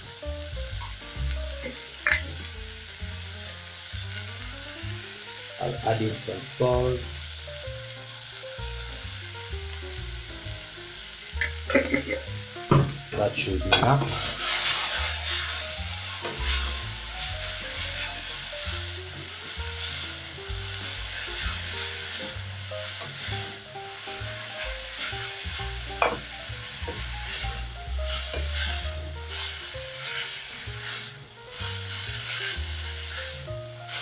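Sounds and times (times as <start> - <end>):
soft background music: 0.0 - 34.0
vegetables sizzling in hot oil: 0.0 - 34.0
wooden spoon scraping pot: 13.8 - 16.8.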